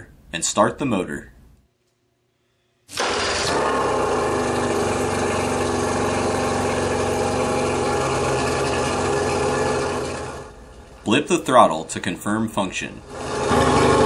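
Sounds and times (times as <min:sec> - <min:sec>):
outboard motor idling: 0:02.9 - 0:11.0, 0:13.0 - 0:14.0.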